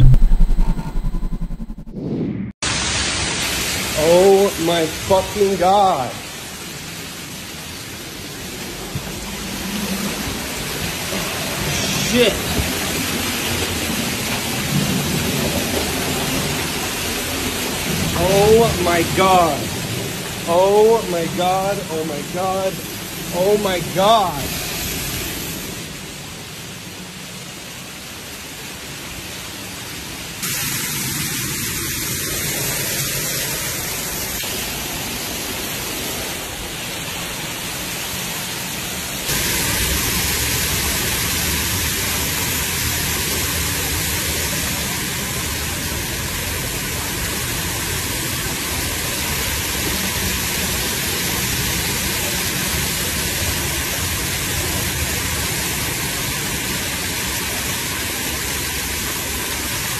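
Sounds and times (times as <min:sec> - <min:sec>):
water pouring and spraying: 0:02.6 - 0:59.9.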